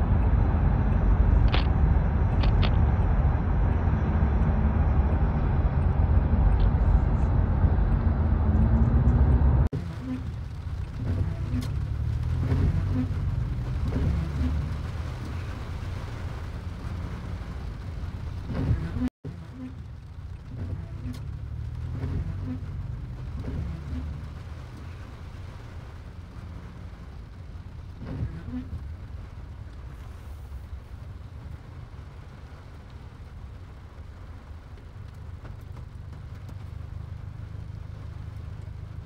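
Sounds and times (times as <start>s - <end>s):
traffic road noise rumble: 0.0s - 39.0s.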